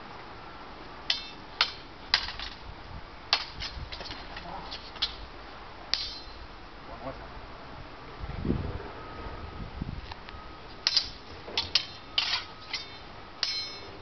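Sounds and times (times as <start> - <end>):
steel swords clashing: 1.1 - 2.6, 5.9 - 6.4, 10.8 - 14.0.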